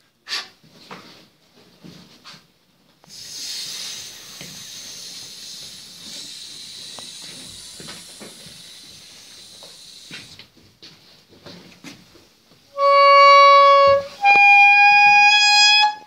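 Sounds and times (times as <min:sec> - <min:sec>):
saxophone airy hiss: 0:03.0 - 0:10.5.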